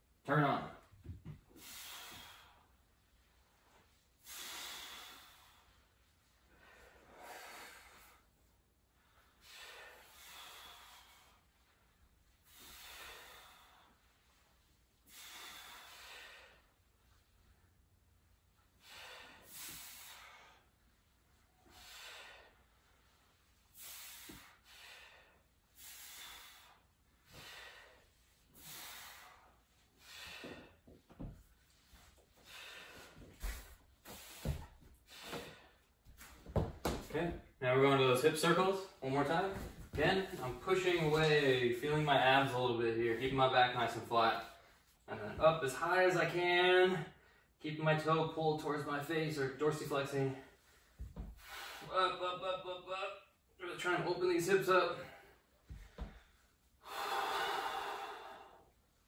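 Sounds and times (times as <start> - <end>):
people exhaling hard: 56.8 - 58.7.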